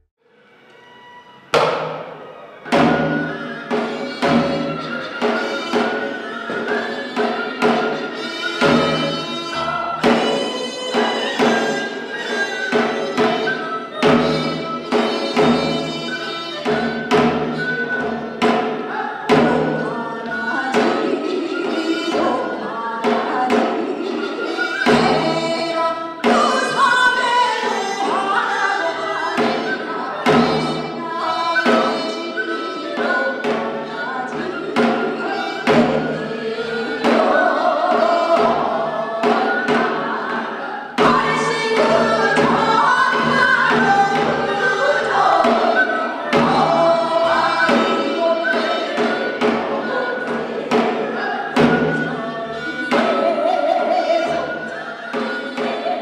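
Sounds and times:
drums beating: 0:01.6 - 0:32.3, 0:33.0 - 0:54.6
woman singing: 0:18.9 - 0:56.0.

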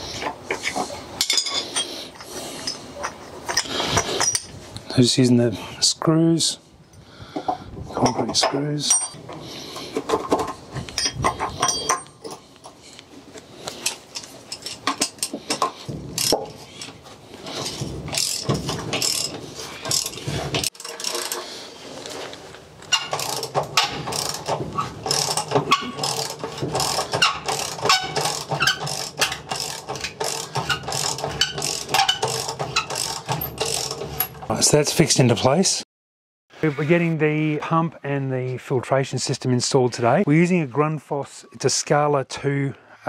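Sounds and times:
ratchet wrench clicking rapidly: 0:18.1 - 0:21.4, 0:23.1 - 0:24.5, 0:25.1 - 0:34.0.

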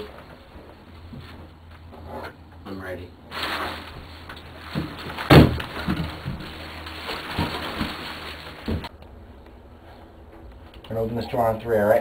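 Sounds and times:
knocks and thumps: 0:04.6 - 0:08.9.

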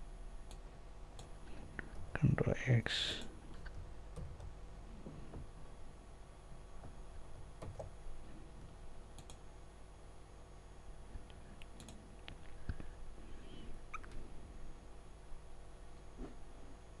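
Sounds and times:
computer mouse clicks: 0:07.6 - 0:07.9, 0:09.1 - 0:09.4, 0:11.2 - 0:12.8.

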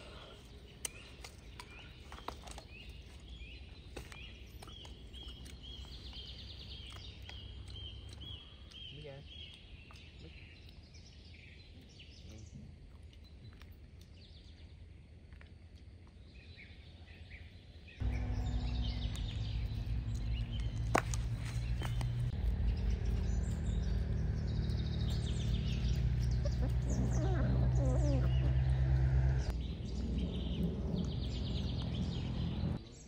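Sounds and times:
faint outdoor ambience: 0:00.0 - 0:33.0
small birds chirping: 0:00.0 - 0:33.0
loud low hum: 0:18.0 - 0:32.9.

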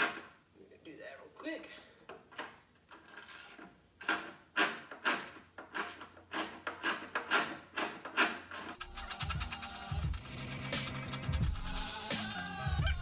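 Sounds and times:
hand tool clicking on bolts: 0:02.1 - 0:11.9.

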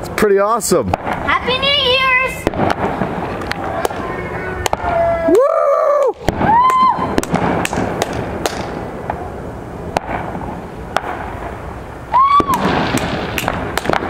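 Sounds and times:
fireworks crackling: 0:00.0 - 0:14.0
fireworks bangs: 0:00.7 - 0:14.0
firework rising whistle: 0:03.9 - 0:07.9, 0:12.1 - 0:13.5.

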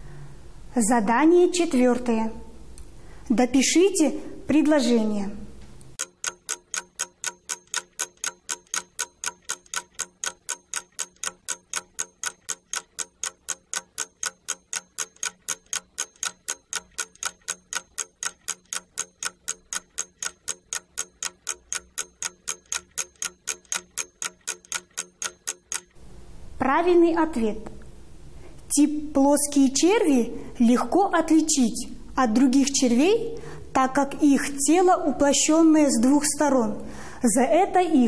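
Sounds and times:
ticking clock timer: 0:05.9 - 0:26.0.

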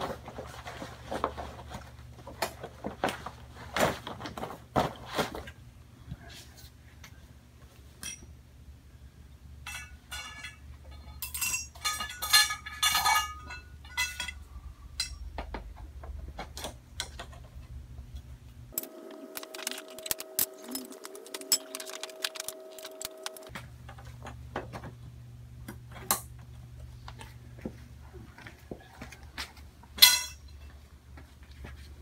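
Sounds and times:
steady hum: 0:04.4 - 0:32.0
metal poles clinking: 0:08.0 - 0:08.3, 0:09.6 - 0:15.4, 0:18.7 - 0:23.5, 0:30.0 - 0:30.7.

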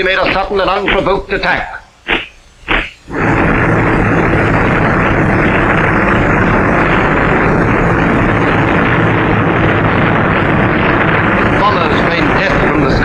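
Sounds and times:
propeller aircraft engines droning: 0:03.1 - 0:13.0.

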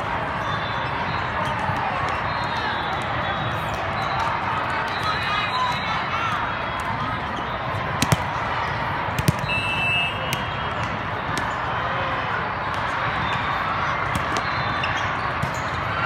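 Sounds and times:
crowd and play din: 0:00.0 - 0:16.0
ball smacks: 0:08.0 - 0:08.4, 0:09.2 - 0:09.5.

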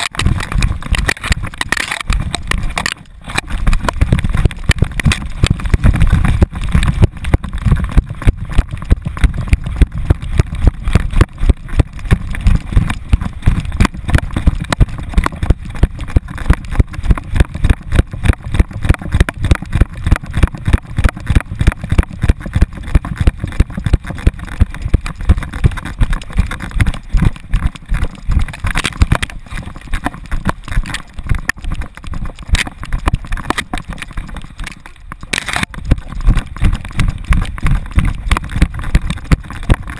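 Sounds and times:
low thumps of running dog: 0:00.0 - 0:35.0, 0:35.6 - 0:39.9.

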